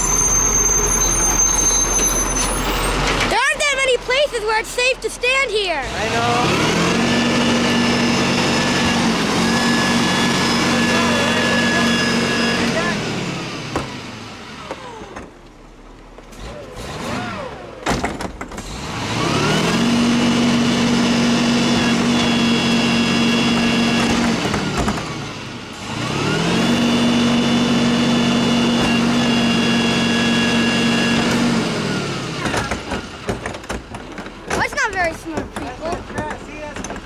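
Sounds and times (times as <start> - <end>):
garbage truck engine revving: 0.0 - 37.0
clanks of cart and tipper: 32.2 - 37.0.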